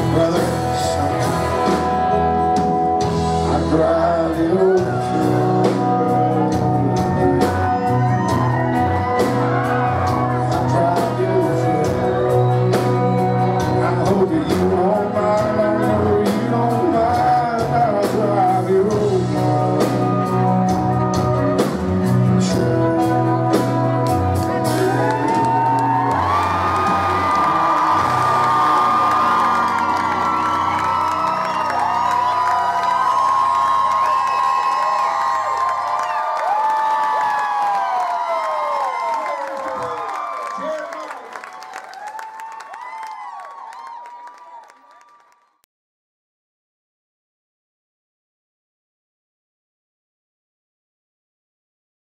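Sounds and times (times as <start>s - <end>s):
man singing: 0.0s - 29.7s
electric guitars: 0.0s - 38.2s
keyboard: 0.0s - 38.9s.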